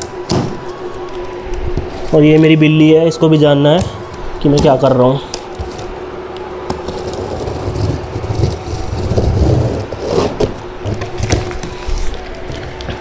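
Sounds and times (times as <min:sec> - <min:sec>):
cardboard flaps scraping and rustling: 0:06.7 - 0:13.0.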